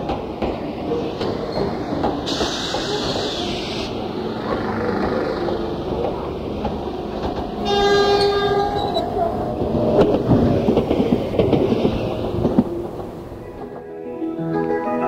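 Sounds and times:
model trains rumbling and clattering: 0.0s - 14.0s
hiss: 0.7s - 5.4s
loud train horn tone: 7.6s - 9.3s.

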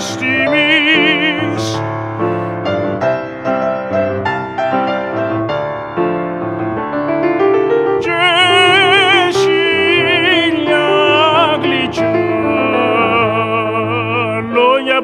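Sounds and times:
piano playing: 0.0s - 15.0s.

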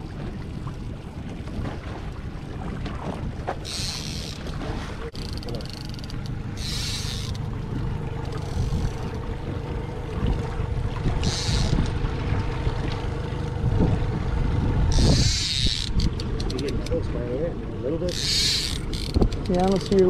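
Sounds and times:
outboard motor running: 0.0s - 20.0s
wind and water rumble: 0.0s - 20.0s.

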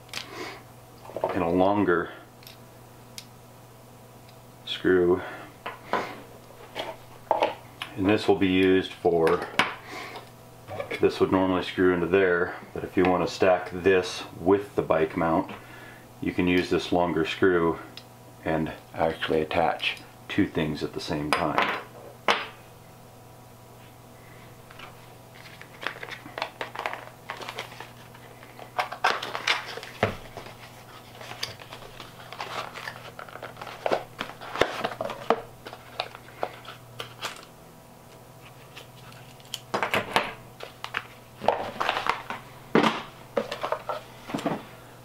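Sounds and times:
packaging rustling: 24.7s - 37.5s, 40.6s - 44.5s.

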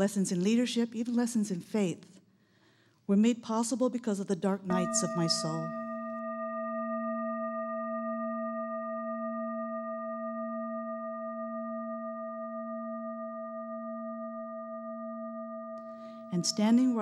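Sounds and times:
singing bowl ringing: 4.7s - 17.0s.

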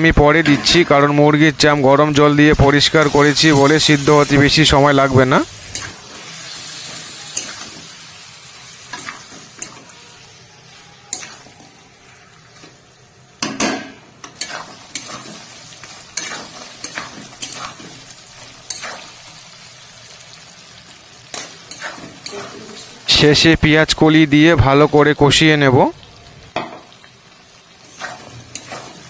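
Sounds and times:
food sizzling: 0.0s - 29.0s
metal spatula scraping metal pan: 14.3s - 18.0s, 21.4s - 23.0s, 27.8s - 29.0s.

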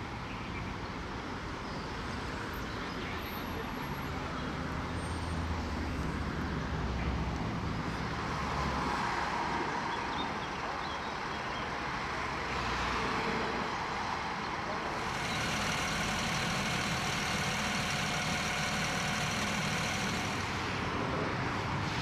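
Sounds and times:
road traffic noise: 0.0s - 22.0s
idling engine hum: 14.8s - 22.0s.

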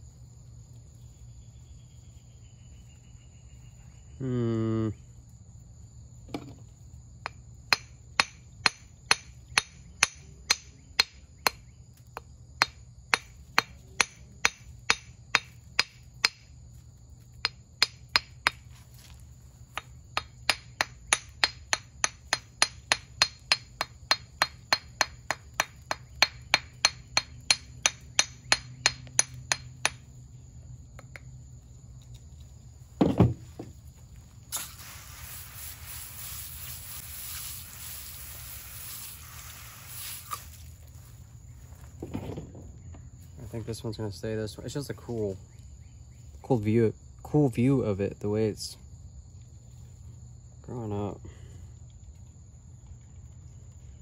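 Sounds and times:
hammer tapping on stone: 7.2s - 16.4s, 17.4s - 18.6s, 19.7s - 30.0s
steady hiss: 32.8s - 41.7s
low thump: 33.0s - 33.8s.

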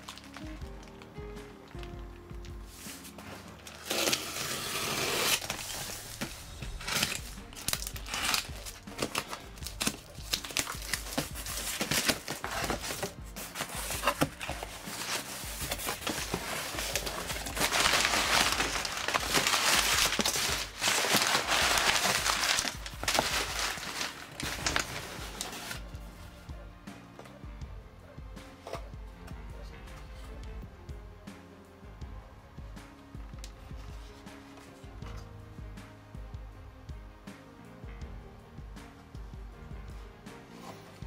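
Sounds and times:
packing paper crinkling: 0.0s - 1.8s, 2.8s - 25.9s
quiet background music: 0.0s - 41.0s
knife slitting packing tape: 3.8s - 5.9s, 6.8s - 25.8s.

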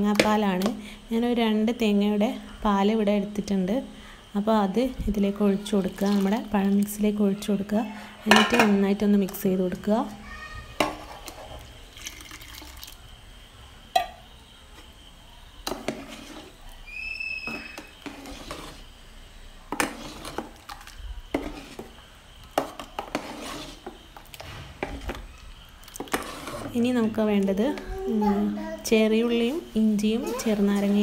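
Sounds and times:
ladle scraping metal pot: 5.2s - 7.4s, 8.2s - 9.0s, 10.7s - 12.6s, 15.6s - 18.9s, 19.7s - 27.8s.

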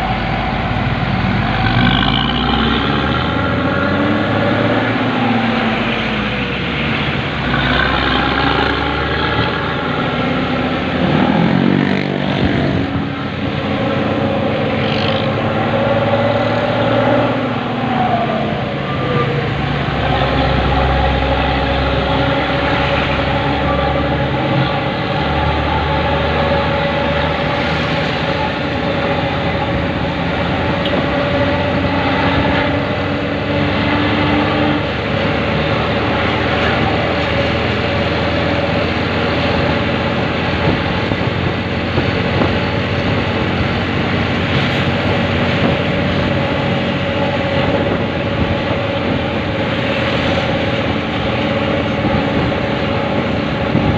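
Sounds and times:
traffic engine and road drone: 0.0s - 53.9s.

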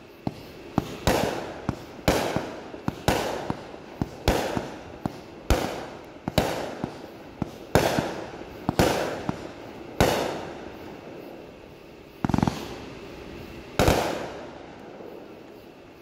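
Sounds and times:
rattle of firework pops: 0.2s - 10.4s, 12.2s - 12.7s, 13.8s - 15.6s
firework bangs with echo: 0.3s - 10.6s, 12.2s - 12.8s, 13.8s - 15.1s.

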